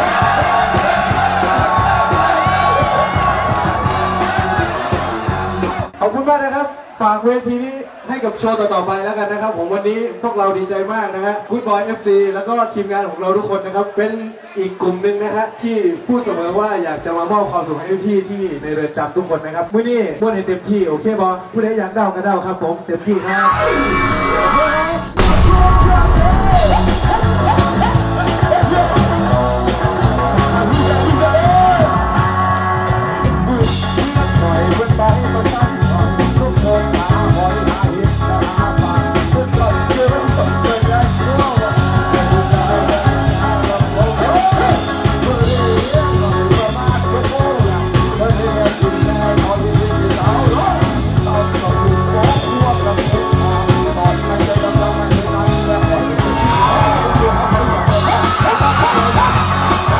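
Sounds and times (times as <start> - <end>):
rock song with singing: 0.0 - 5.9, 23.5 - 59.9.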